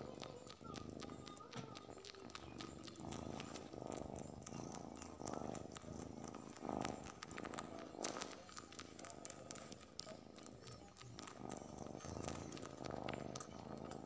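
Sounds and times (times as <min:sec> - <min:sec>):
kitten purring: 0:00.0 - 0:14.0
tongue clicks on fabric: 0:00.0 - 0:14.0.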